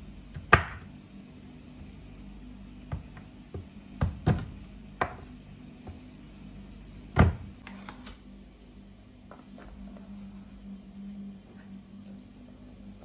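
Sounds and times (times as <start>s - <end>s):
faint steady hum: 0.0s - 13.0s
knife chopping on wooden board: 0.3s - 0.9s.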